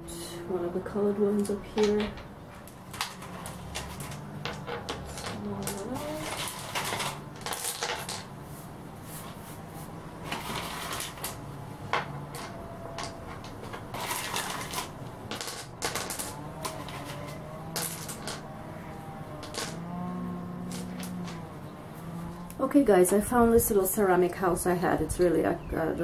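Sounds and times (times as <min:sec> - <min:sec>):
pebbles clacking on tile floor: 0:01.4 - 0:08.4, 0:10.2 - 0:18.6, 0:19.3 - 0:20.0, 0:20.6 - 0:21.5.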